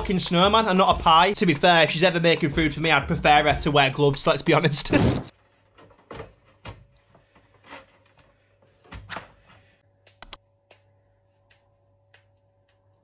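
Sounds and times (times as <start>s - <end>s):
handling rustles and knocks: 4.9s - 12.9s
sharp clicks: 10.2s - 10.4s.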